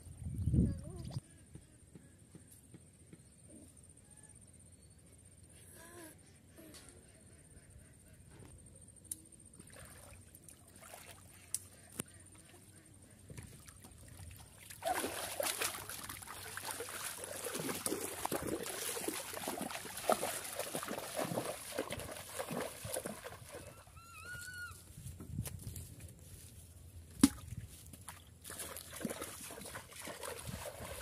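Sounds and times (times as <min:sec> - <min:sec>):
river water sloshing and splashing: 0:09.6 - 0:11.6, 0:13.6 - 0:23.8, 0:27.2 - 0:31.0.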